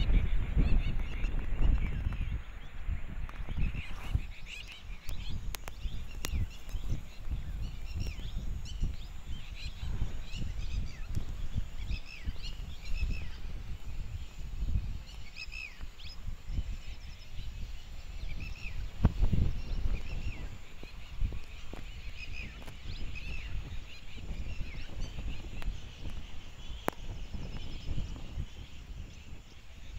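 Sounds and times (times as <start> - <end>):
birds chirping: 0.0 - 29.9.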